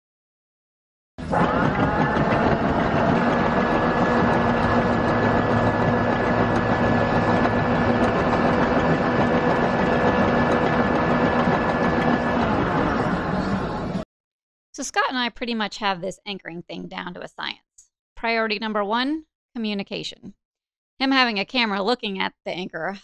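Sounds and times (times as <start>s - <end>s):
electric windlass motor running: 1.2s - 14.0s.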